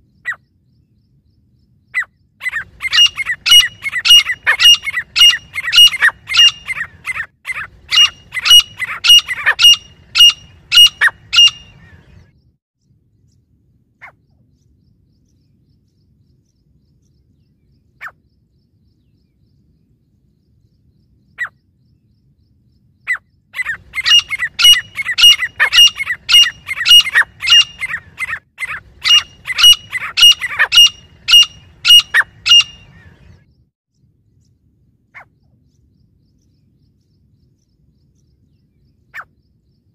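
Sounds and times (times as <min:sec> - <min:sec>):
francolin calling: 0:01.9 - 0:12.2, 0:23.0 - 0:33.4.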